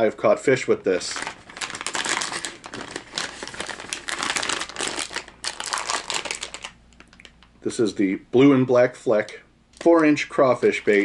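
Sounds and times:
plastic packaging crinkling: 0.9s - 7.6s.

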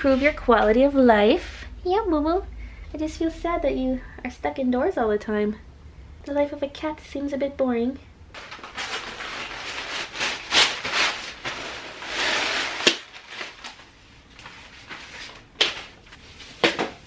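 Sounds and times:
nylon bag rustling and scraping: 8.4s - 15.4s.

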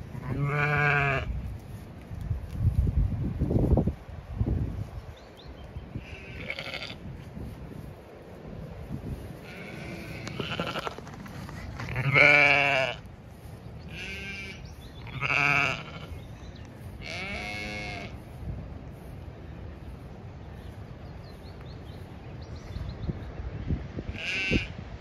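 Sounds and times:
wind: 0.0s - 25.0s
sheep bleating: 0.1s - 1.3s, 6.0s - 7.0s, 9.4s - 11.0s, 11.8s - 13.0s, 13.9s - 16.2s, 17.0s - 18.2s, 24.2s - 24.7s.

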